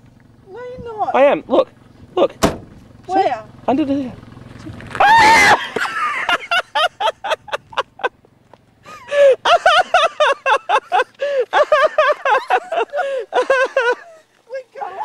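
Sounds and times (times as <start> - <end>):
person laughing hysterically: 5.0 - 8.2, 8.9 - 14.2.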